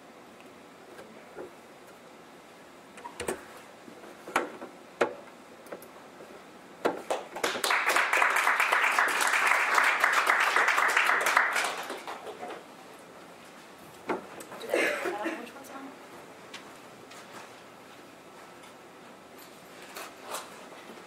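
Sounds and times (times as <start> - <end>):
audience applauding: 7.0 - 12.6.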